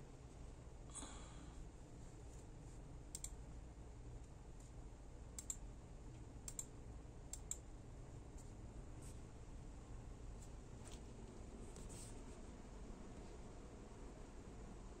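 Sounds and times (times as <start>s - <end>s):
low background hum: 0.0s - 15.0s
computer mouse clicking: 3.1s - 3.4s, 5.4s - 5.6s, 6.4s - 6.7s, 7.3s - 7.6s.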